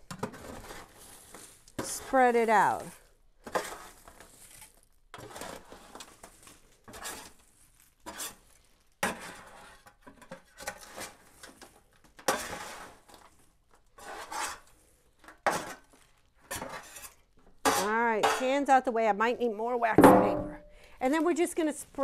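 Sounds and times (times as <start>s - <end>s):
spatula scraping metal pan: 0.1s - 7.4s, 8.0s - 11.4s, 12.2s - 13.2s, 14.0s - 14.8s, 15.4s - 18.8s
cereal mix sliding onto paper: 0.4s - 2.9s, 3.5s - 8.7s.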